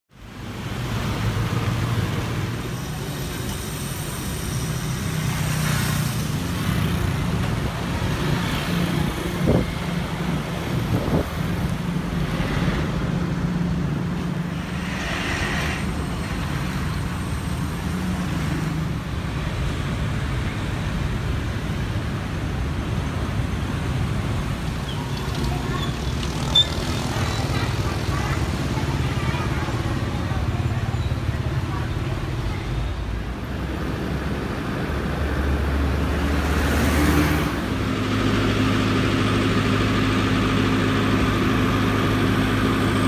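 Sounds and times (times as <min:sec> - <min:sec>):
motorbike and car engines passing: 0:04.7 - 0:21.7, 0:33.5 - 0:43.0.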